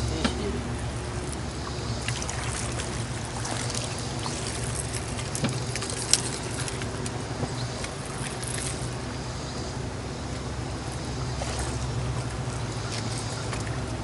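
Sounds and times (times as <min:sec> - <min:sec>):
water trickling and splashing: 0:00.0 - 0:14.0.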